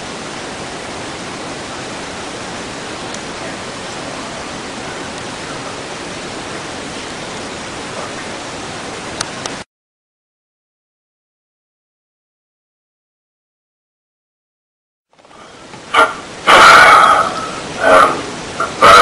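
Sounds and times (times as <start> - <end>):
steady static hiss: 0.0 - 9.7, 15.1 - 19.0.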